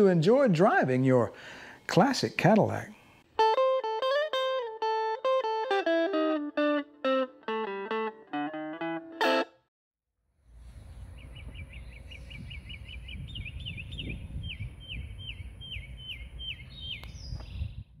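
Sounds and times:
wind rumbling on microphone: 0:10.5 - 0:18.0
bird chirping: 0:10.7 - 0:18.0.

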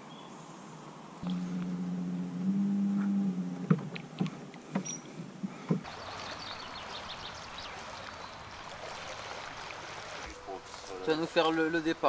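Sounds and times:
steady low hum: 0:01.2 - 0:05.8
oars knocking against hull: 0:03.6 - 0:05.9.

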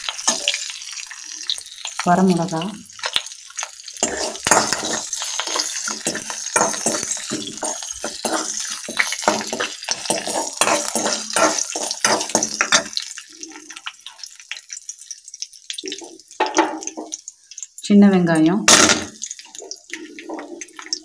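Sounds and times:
spoon scraping and clinking on pan: 0:00.0 - 0:00.8, 0:03.9 - 0:13.1
hot oil sizzling in a pan: 0:00.0 - 0:21.0.

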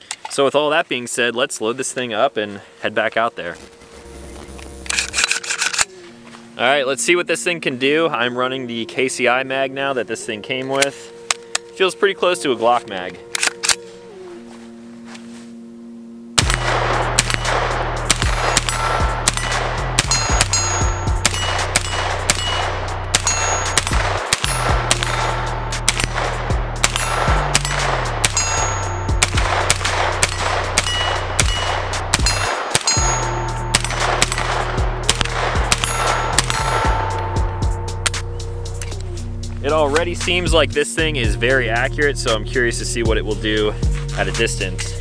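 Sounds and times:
pistol gunshots: 0:16.4 - 0:38.2
steel targets ringing: 0:16.4 - 0:38.4.

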